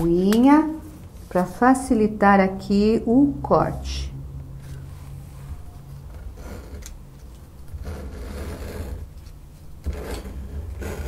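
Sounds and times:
craft knife scraping through paper: 7.7 - 9.2.

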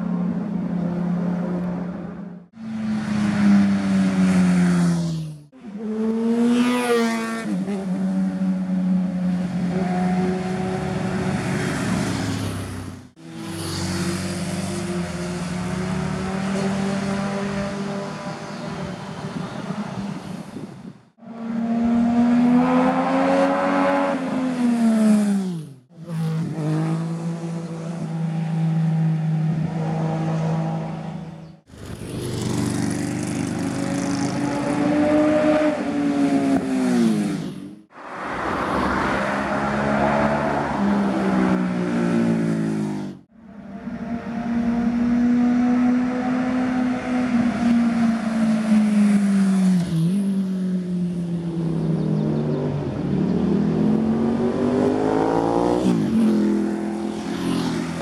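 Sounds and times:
motorcycles riding past: 2.6 - 20.7, 21.4 - 58.0.

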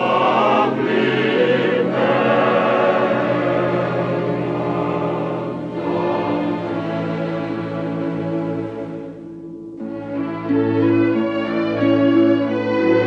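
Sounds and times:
choir singing held notes: 0.0 - 9.4.

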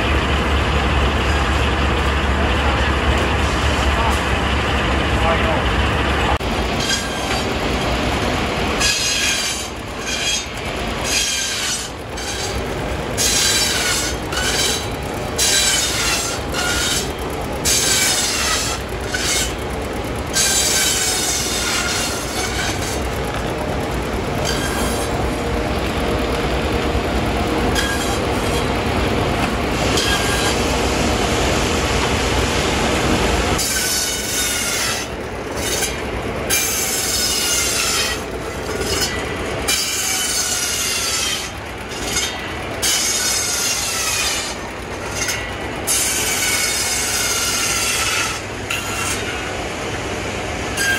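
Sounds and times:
circular saw screeching through wood: 6.6 - 7.6, 8.8 - 23.4, 24.4 - 25.4, 27.5 - 28.8, 29.4 - 30.8, 33.6 - 49.5.

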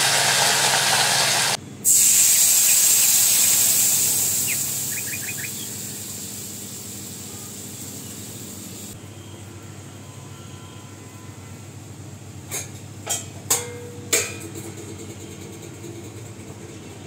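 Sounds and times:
paste sizzling in hot oil: 0.0 - 9.0.

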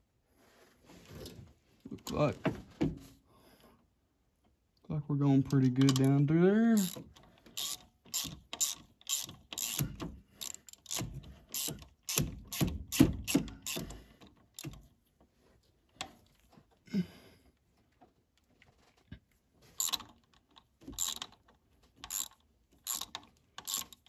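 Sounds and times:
hand ratchet clicking: 6.8 - 14.9, 19.8 - 20.4, 21.0 - 21.4, 22.0 - 24.0.

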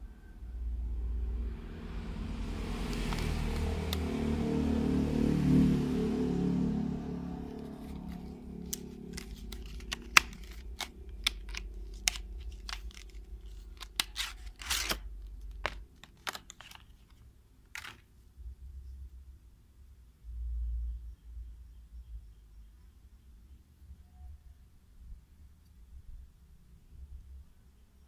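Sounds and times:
plastic packaging crinkling and tearing: 2.8 - 4.0, 7.6 - 18.1.

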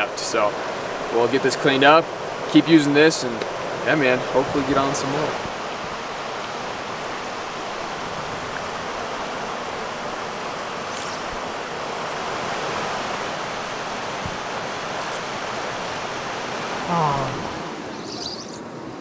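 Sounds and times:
river rushing over rocks: 0.0 - 18.0.

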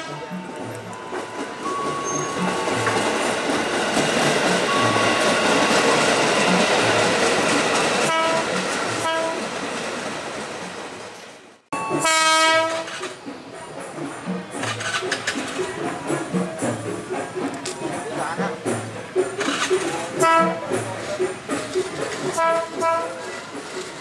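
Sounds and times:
train horn: 0.0 - 0.6, 8.0 - 9.5, 12.0 - 13.2, 20.2 - 20.8, 22.4 - 23.3
train wheels rumbling on track: 0.0 - 24.0.

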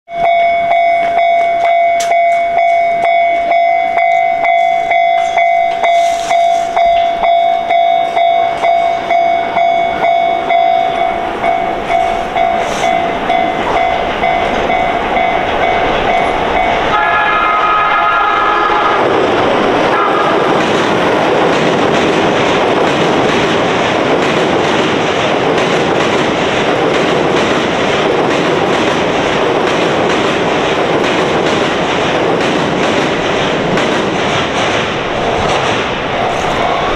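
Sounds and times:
level crossing alarm ringing: 0.1 - 21.2
train wheels rushing on rails: 0.2 - 36.9
train horn: 16.8 - 20.6.

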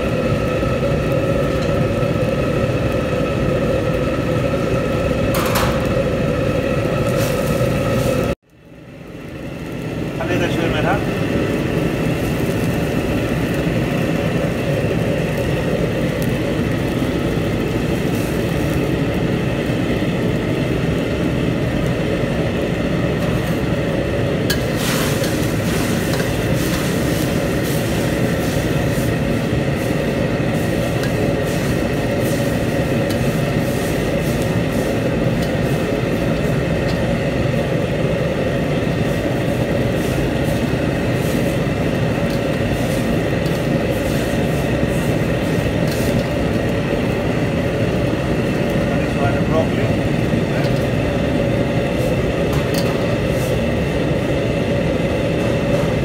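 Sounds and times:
gas burner roaring: 0.0 - 56.0
kitchen extraction fan: 0.0 - 56.0
water boiling: 0.0 - 56.0.

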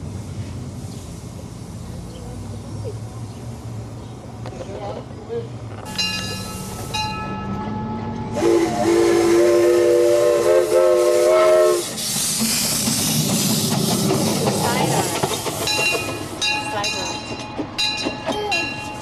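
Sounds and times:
steady steam hiss: 0.0 - 7.3, 8.3 - 17.1
steam locomotive whistle: 8.3 - 12.1.

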